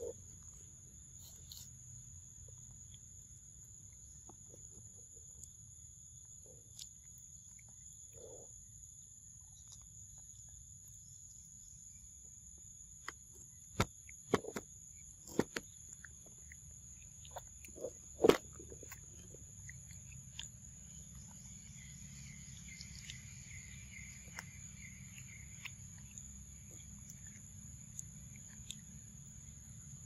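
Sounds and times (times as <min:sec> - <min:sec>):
monkey biting and chewing fruit: 0:00.0 - 0:01.8, 0:13.6 - 0:30.0.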